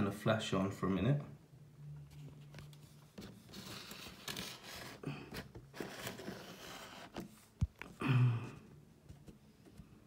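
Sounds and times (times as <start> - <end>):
handling noise rustling and scraping: 2.0 - 8.0.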